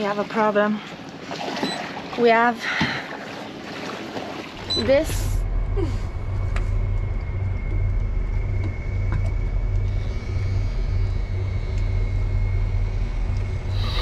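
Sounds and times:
engine rumbling with high whine: 0:04.6 - 0:14.0.

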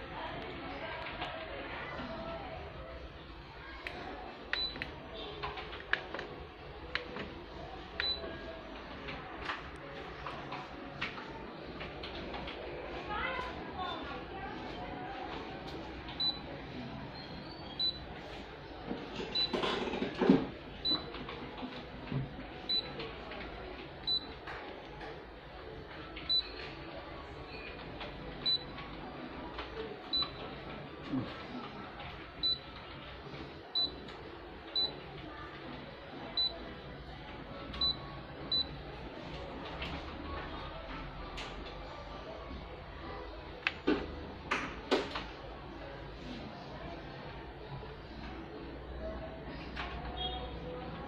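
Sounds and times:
short high key-press beeps: 0:04.6 - 0:04.8, 0:08.0 - 0:08.2, 0:30.1 - 0:30.4, 0:32.4 - 0:32.6, 0:37.8 - 0:38.7.

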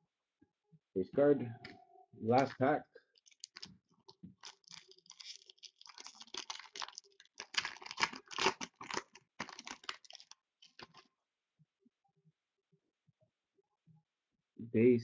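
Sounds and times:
foil wrapper tearing and crinkling: 0:03.2 - 0:11.1.

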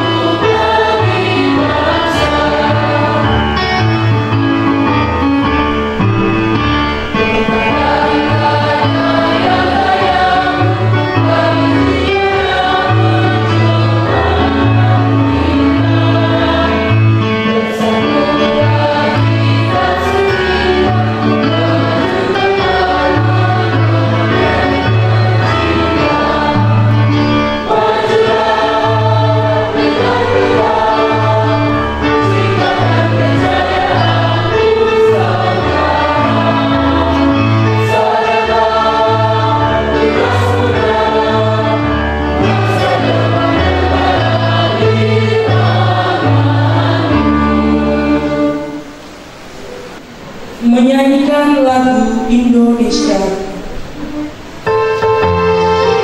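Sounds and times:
choir singing in harmony: 0:00.0 - 0:56.0
steady bass line: 0:01.2 - 0:11.5.

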